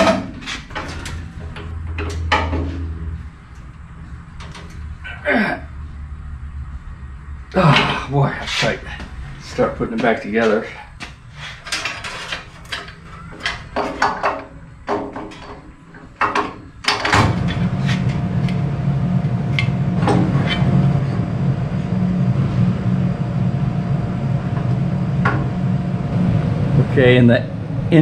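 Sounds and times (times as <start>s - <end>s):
steady low hum: 0.0s - 28.0s
metal parts clanking and clicking: 11.4s - 18.2s.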